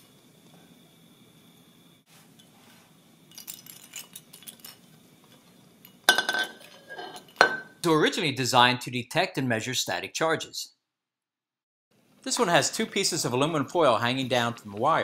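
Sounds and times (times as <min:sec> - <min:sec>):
glass tube clinking on benchtop: 0:03.3 - 0:07.8.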